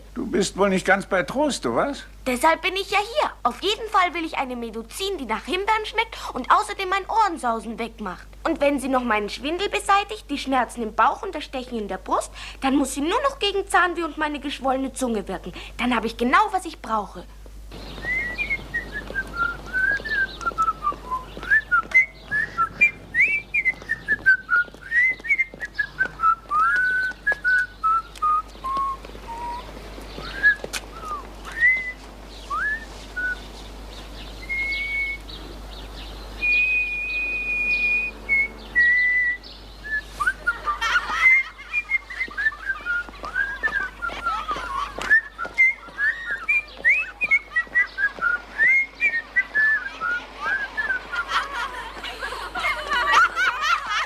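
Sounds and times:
person whistling a tune: 0:36.4 - 0:40.7.

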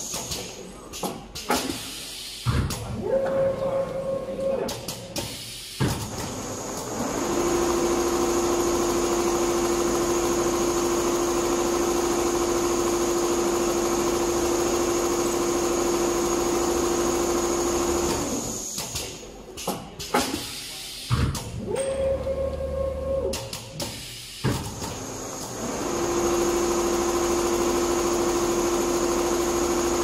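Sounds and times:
sewing machine stitching: 0:24.7 - 0:30.0.

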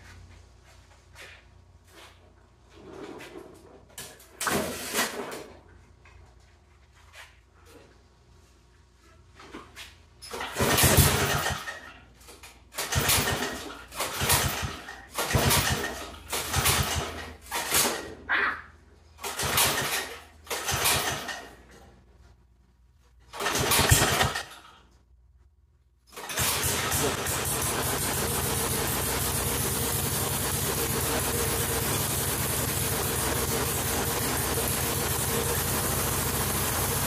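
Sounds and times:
engine cranking and sputtering: 0:10.3 - 0:11.9, 0:12.7 - 0:17.8, 0:19.2 - 0:21.6, 0:23.3 - 0:24.6, 0:26.1 - 0:37.0
small engine running: 0:26.2 - 0:37.0.

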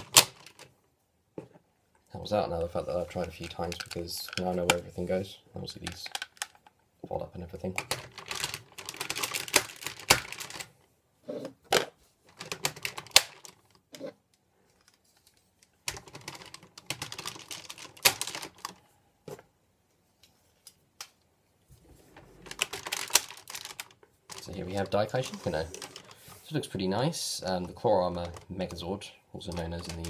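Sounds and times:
plastic toy parts clicking: 0:03.1 - 0:04.8, 0:05.8 - 0:06.8, 0:07.8 - 0:10.7, 0:22.5 - 0:26.1, 0:29.4 - 0:30.0.

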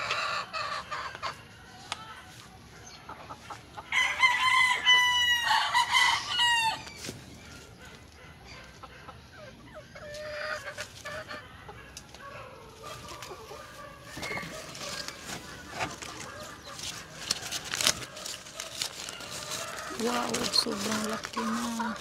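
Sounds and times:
chickens clucking: 0:00.0 - 0:22.0
leaves rustling against phone: 0:12.8 - 0:22.0.

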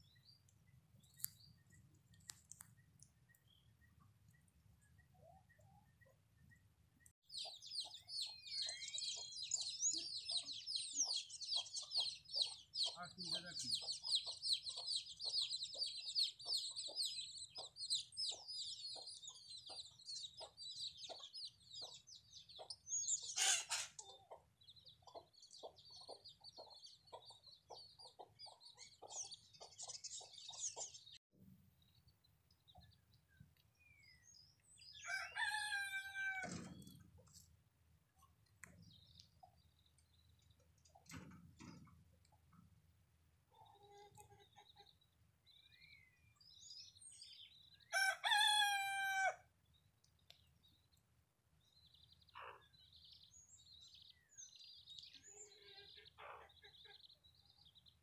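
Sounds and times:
small birds chirping: 0:00.0 - 0:58.0
soft ticks: 0:02.0 - 0:03.5
rooster crowing: 0:35.0 - 0:36.6, 0:47.9 - 0:49.4.

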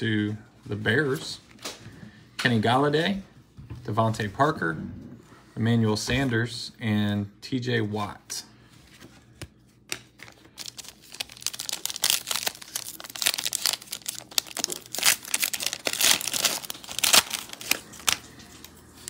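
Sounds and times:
foil wrapper tearing and crinkling: 0:10.2 - 0:18.8.

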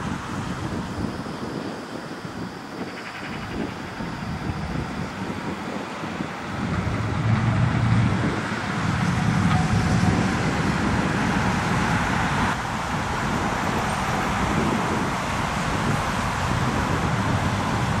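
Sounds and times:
cars driving past: 0:06.0 - 0:18.0.

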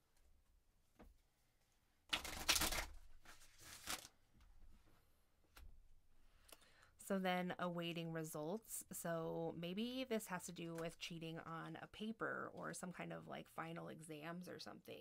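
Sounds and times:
cards shuffled by hand: 0:02.1 - 0:04.1.

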